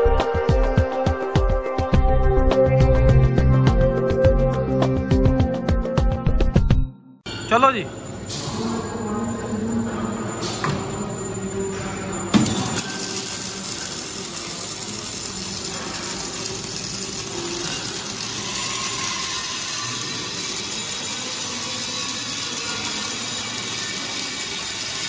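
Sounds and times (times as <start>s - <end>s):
welding arc hiss: 12.3s - 25.0s.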